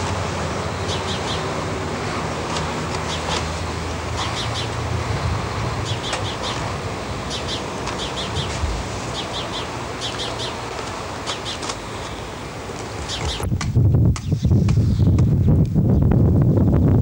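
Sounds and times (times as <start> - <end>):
background hiss and rumble: 0.0 - 14.2
small bird chirping: 0.8 - 1.5, 4.2 - 4.8, 5.8 - 6.6, 7.2 - 10.6, 11.2 - 12.3, 13.0 - 13.5.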